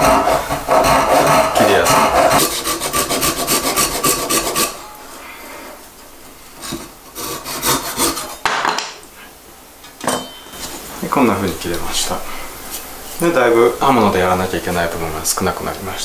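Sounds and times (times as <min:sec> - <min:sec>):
hand saw cutting wood: 0:00.0 - 0:04.8, 0:06.6 - 0:08.4.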